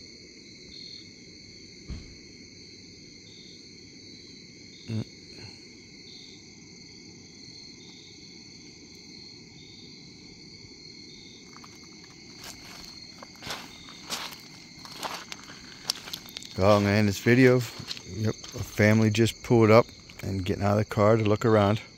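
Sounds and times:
insect chirping: 0.0 - 21.9
insects trilling: 0.0 - 21.9
thump: 1.8 - 2.3
footsteps on gravel: 11.3 - 20.3.

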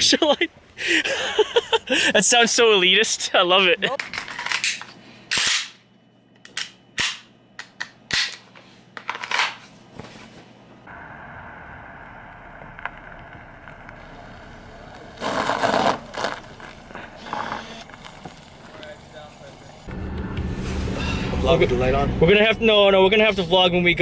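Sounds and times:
car engine hum: 10.8 - 24.0.

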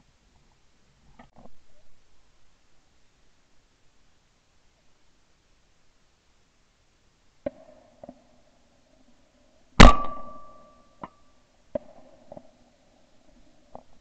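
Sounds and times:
shotgun shot with ringing tail: 9.8 - 10.7.

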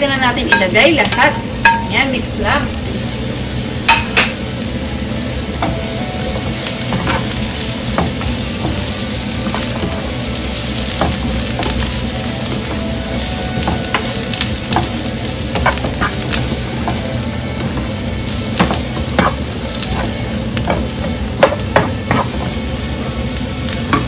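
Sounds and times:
vegetables sizzling in frying pan: 0.0 - 24.0
spatula scraping pan: 12.5 - 17.9, 18.6 - 22.6.

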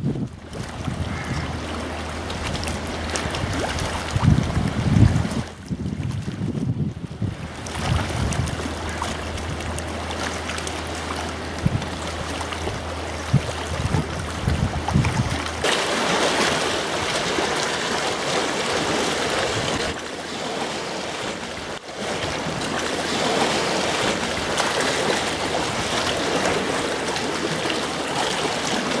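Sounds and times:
wind buffeting microphone: 0.0 - 15.7
lake water lapping and splashing: 0.0 - 29.0.

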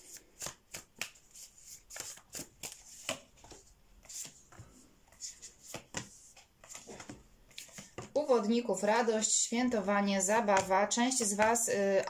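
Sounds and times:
cards snapping and slapping: 0.2 - 1.2.

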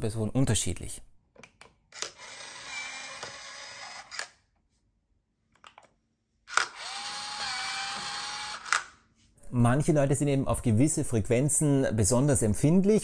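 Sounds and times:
smart lock motor turning key: 2.0 - 4.4, 6.5 - 8.9.

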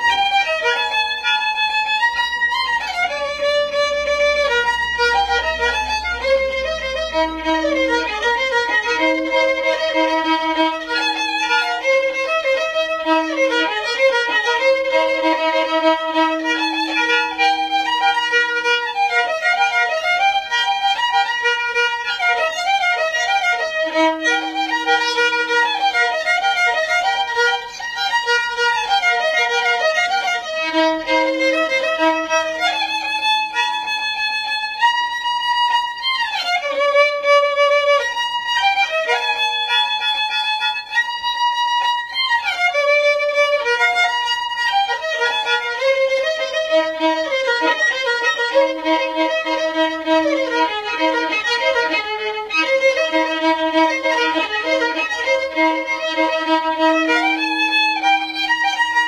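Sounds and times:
solo violin melody: 0.0 - 59.0.

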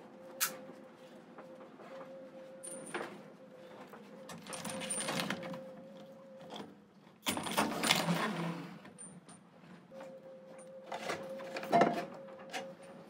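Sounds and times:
metal hoses clinking and rattling: 4.3 - 5.6, 7.2 - 8.4.

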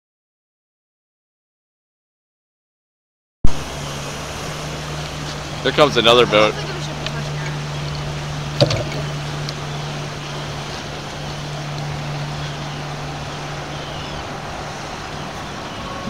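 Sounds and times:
wind: 3.4 - 16.0
choppy water rushing: 3.5 - 16.0
motorboat engine droning: 3.5 - 16.0.

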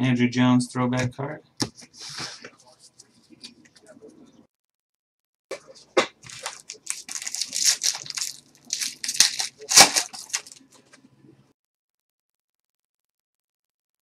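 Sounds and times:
wrappers tearing and crinkling: 6.2 - 10.8.

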